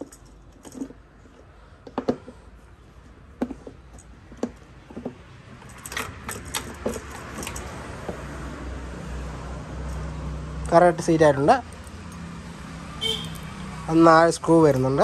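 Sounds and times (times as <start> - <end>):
plastic and metal parts clicking: 0.0 - 8.2.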